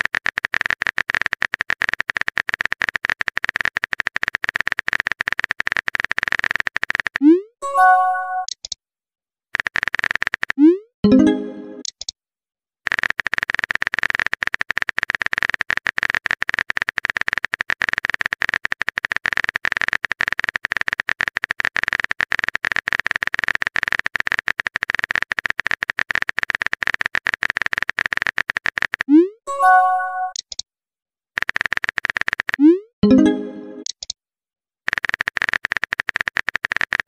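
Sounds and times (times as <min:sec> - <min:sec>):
dense crackle of rapid clicks: 0:00.0 - 0:07.2, 0:09.6 - 0:10.6, 0:12.9 - 0:29.1, 0:31.4 - 0:32.6, 0:34.9 - 0:37.0.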